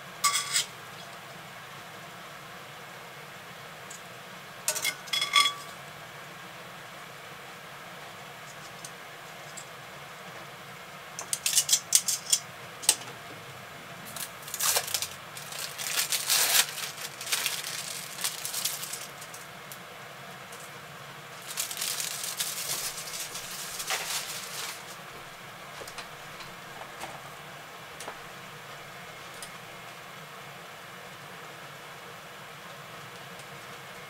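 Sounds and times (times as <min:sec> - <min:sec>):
plastic film crinkling: 0:14.1 - 0:19.8, 0:21.3 - 0:27.2.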